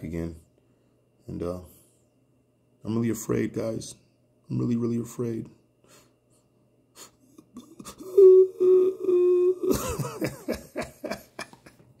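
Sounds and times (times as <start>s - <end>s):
man laughing: 7.3s - 12.0s
man holding a sung note: 8.0s - 9.8s.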